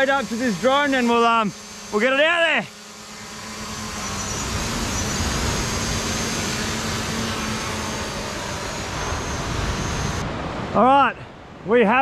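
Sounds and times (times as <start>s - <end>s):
drone propellers humming: 0.0s - 11.8s
high motor whine: 0.0s - 12.0s.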